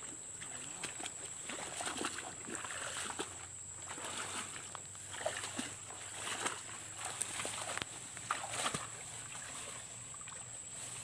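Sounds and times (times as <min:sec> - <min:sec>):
feet splashing in muddy water: 0:00.0 - 0:11.0
leaves and stems rustling: 0:03.8 - 0:11.0.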